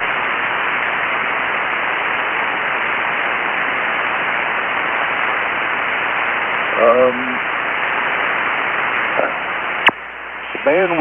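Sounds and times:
radio static hiss: 0:00.0 - 0:11.0.

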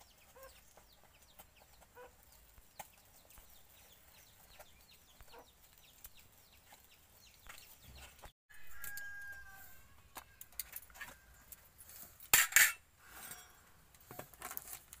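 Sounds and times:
chickens clucking and peeping: 0:00.0 - 0:11.6.

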